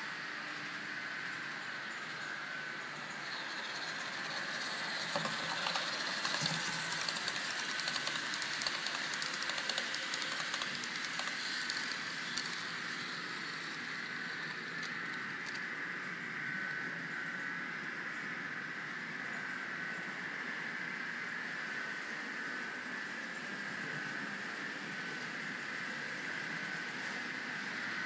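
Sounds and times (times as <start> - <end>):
steady hiss: 0.0 - 16.7
model train wheels clicking: 2.7 - 15.7.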